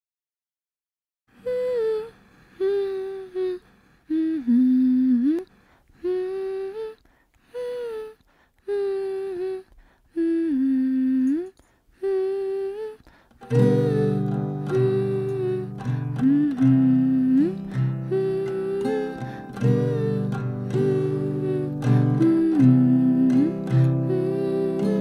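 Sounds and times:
person humming a melody: 0:01.3 - 0:25.0
strummed acoustic guitar: 0:13.4 - 0:25.0.

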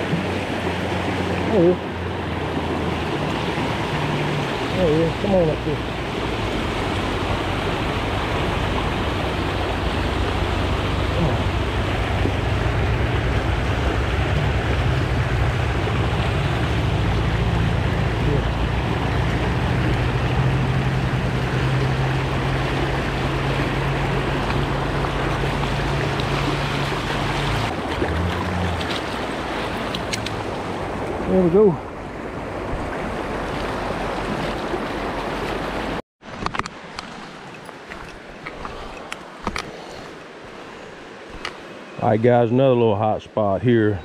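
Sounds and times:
water rushing over rocks: 0:00.0 - 0:43.1
low rumble: 0:10.5 - 0:29.2.

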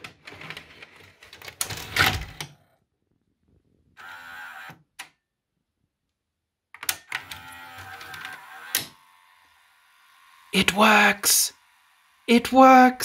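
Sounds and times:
small motor whirring: 0:04.0 - 0:04.8, 0:07.0 - 0:10.6, 0:11.5 - 0:12.3.

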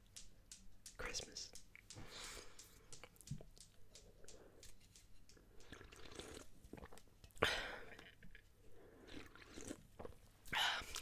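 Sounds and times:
person sipping and swallowing: 0:05.4 - 0:11.0.

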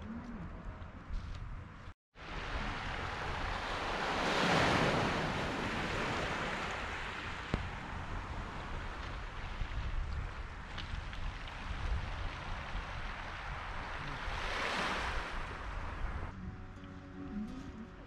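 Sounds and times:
wave washing over pebbles: 0:02.2 - 0:15.7.

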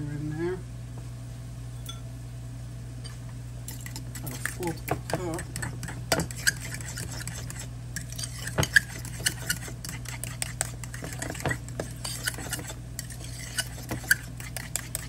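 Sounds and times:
spoon clinking in glass bowl: 0:03.0 - 0:04.6.

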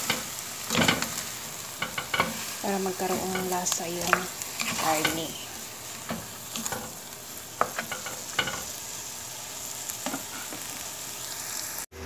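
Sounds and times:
wooden spoon stirring: 0:00.0 - 0:08.8
food sizzling in a pot: 0:00.0 - 0:12.0.

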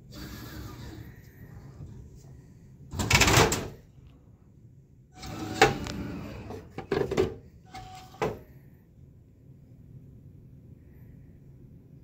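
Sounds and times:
vending machine rattle: 0:02.9 - 0:03.8.

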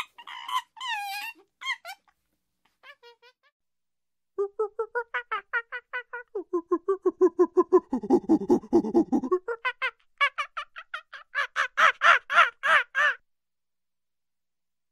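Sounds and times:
chimpanzee hooting and screaming: 0:00.0 - 0:02.0, 0:07.4 - 0:13.2.

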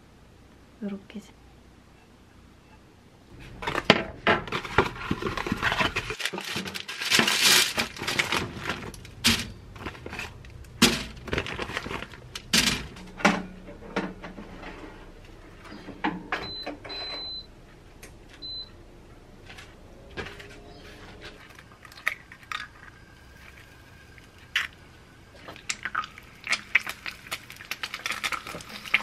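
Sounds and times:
rustling packaging and paper: 0:03.4 - 0:13.0, 0:25.4 - 0:29.0
air fryer control panel beeps: 0:16.4 - 0:17.5, 0:18.4 - 0:18.8.

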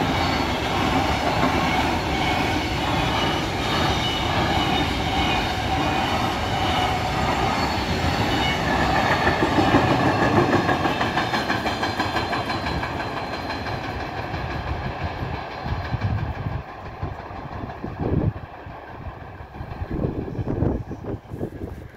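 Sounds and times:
train wagons rolling on track: 0:00.0 - 0:21.9
wheels clicking over rail joints: 0:08.6 - 0:20.2.

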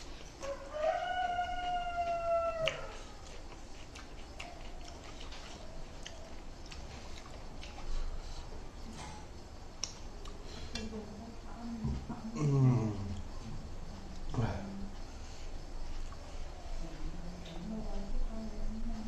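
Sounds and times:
chewing clicks and smacks: 0:02.0 - 0:08.1, 0:09.0 - 0:10.9.

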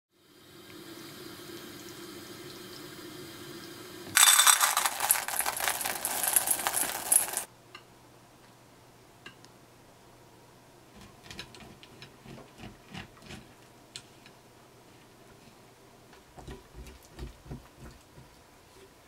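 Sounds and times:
chocolate chips clattering into metal bowl: 0:04.2 - 0:07.5.

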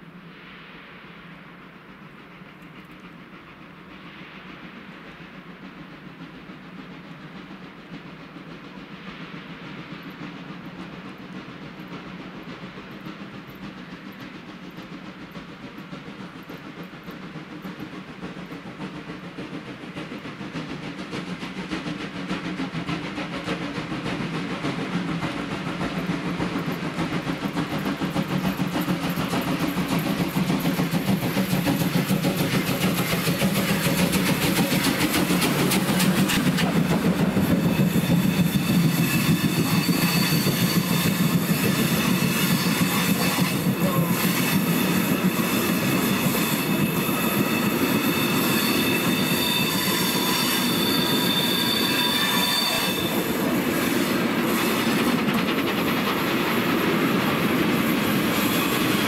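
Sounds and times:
steam locomotive under steam: 0:00.0 - 0:59.0
wheel clatter on rail joints: 0:10.0 - 0:59.0
high wheel squeal: 0:28.5 - 0:59.0.

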